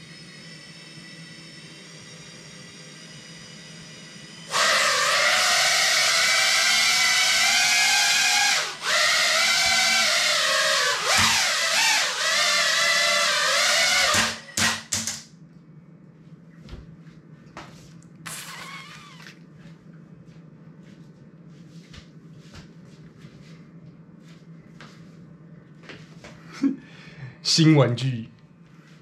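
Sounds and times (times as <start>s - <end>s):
quadcopter motors whining: 0.0s - 14.9s, 18.3s - 19.4s
low steady hum: 15.2s - 29.0s.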